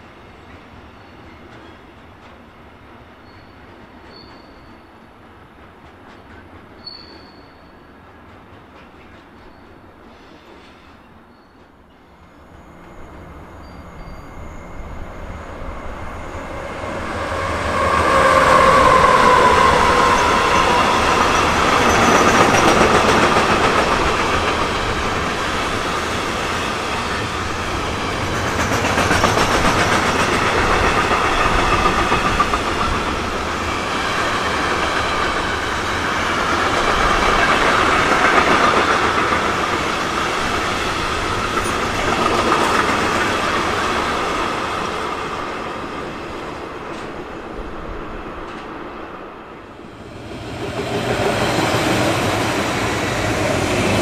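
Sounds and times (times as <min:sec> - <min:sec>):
freight train wheels clattering: 0:17.4 - 0:45.8.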